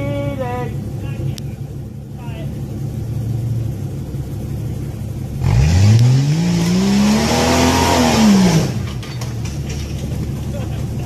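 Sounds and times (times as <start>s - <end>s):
engine revving: 5.3s - 11.0s.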